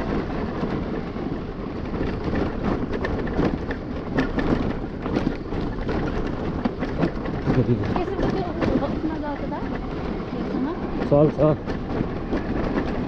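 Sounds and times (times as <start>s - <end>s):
rattling bodywork: 0.0s - 13.0s
wind and road noise: 0.0s - 13.0s.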